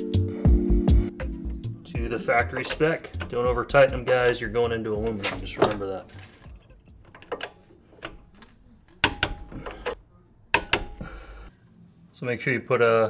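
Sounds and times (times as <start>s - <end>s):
tools and brake hardware clicking: 2.4s - 11.3s.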